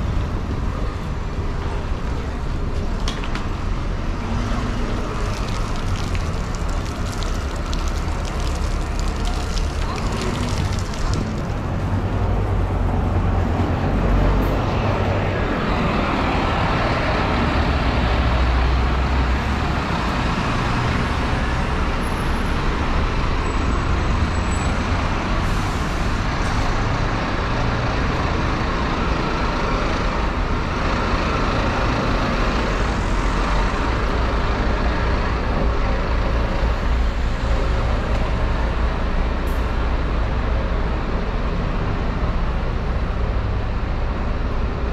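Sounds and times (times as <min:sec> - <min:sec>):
city street traffic rumble: 0:00.0 - 0:44.9.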